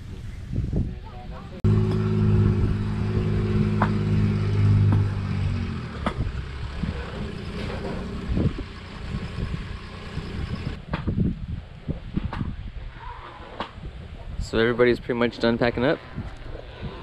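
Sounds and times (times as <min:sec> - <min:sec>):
vehicle engine running: 0:01.6 - 0:10.8.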